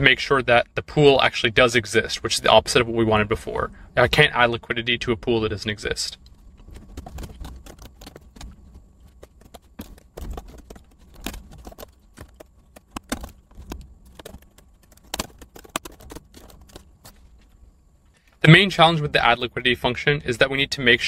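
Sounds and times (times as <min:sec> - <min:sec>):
typing on computer keyboard: 0:06.6 - 0:17.1.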